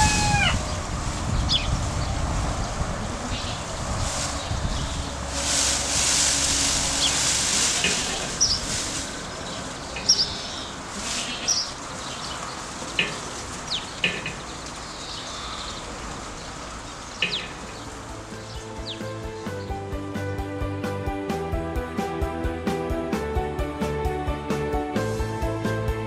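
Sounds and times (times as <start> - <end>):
rustling hiss: 0.0 - 19.9
small birds chirping: 0.5 - 5.2, 8.3 - 19.8.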